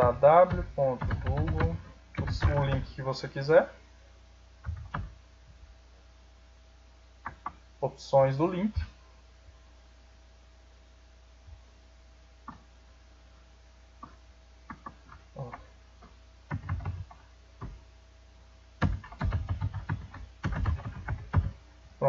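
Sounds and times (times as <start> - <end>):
faint electrical hum: 0.0 - 22.0
keyboard keys and mouse clicking: 0.4 - 2.9, 12.4 - 12.7, 14.0 - 17.8, 18.8 - 21.6.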